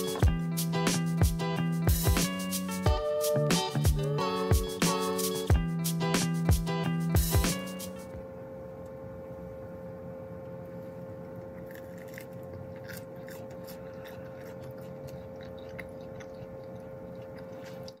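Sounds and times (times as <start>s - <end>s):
steady low hum: 0.0s - 18.0s
person chewing toasted bread: 11.2s - 18.0s.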